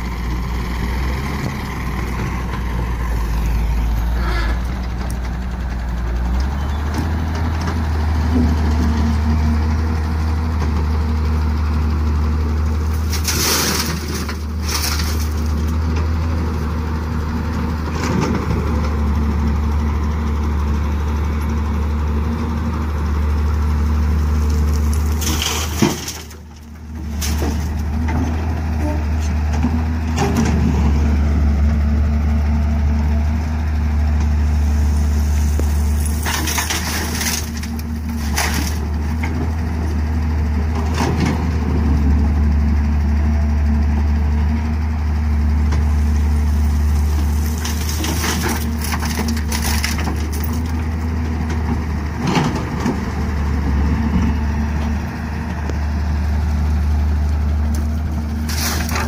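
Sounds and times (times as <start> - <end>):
diesel engines droning: 0.0 - 59.0
soil dumped into trailer: 12.9 - 15.9, 24.4 - 29.0, 34.6 - 39.4, 45.8 - 50.8, 57.7 - 59.0.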